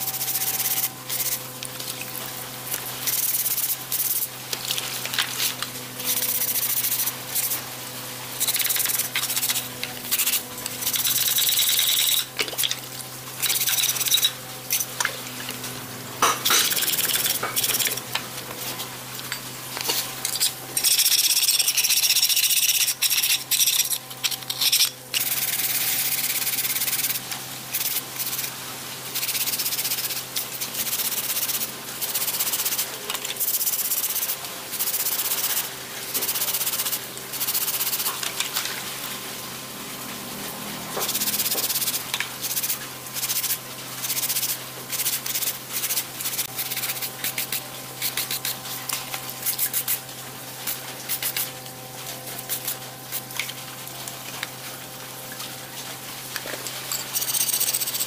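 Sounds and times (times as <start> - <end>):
scrub brush scrubbing metal: 3.0 - 7.7, 8.3 - 12.8, 13.4 - 14.9, 16.4 - 18.9, 19.8 - 38.1, 41.0 - 51.6, 52.2 - 53.5.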